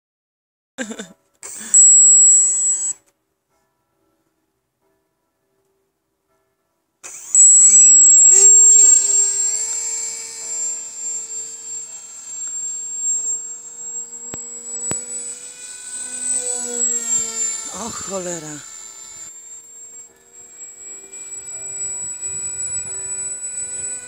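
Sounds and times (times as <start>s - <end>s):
electric motor propeller whine: 1.4s - 3.0s, 7.0s - 24.0s.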